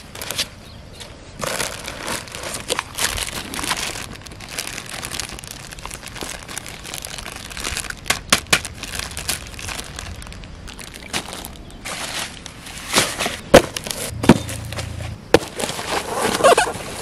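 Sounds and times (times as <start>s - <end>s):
plastic bag crinkling: 1.4s - 12.4s.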